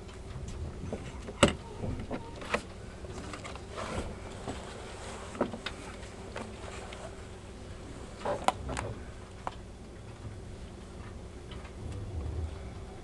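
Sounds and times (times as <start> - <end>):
train interior low hum: 0.0 - 13.0.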